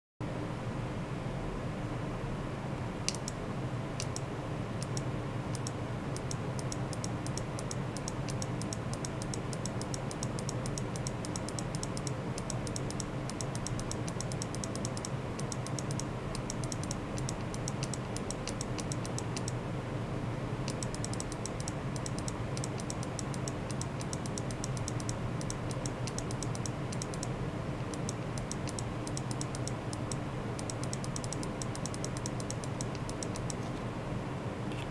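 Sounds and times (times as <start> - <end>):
steady electrical hum: 0.2 - 34.9
keyboard typing: 4.0 - 4.2, 5.6 - 19.6, 20.7 - 27.3, 27.9 - 33.7.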